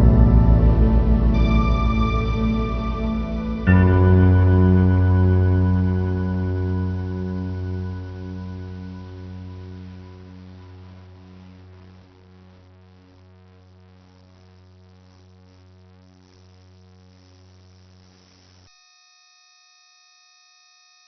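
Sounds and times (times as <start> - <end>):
ambient electronic drone music: 0.0 - 12.6
chord of pure electronic tones: 0.0 - 16.4.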